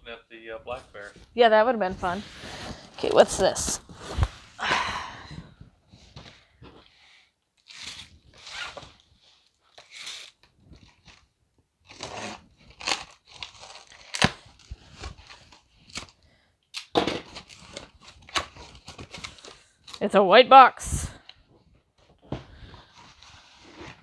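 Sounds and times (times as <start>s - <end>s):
box cutter slitting packing tape: 7.6s - 9.0s, 9.7s - 10.5s, 11.9s - 14.7s.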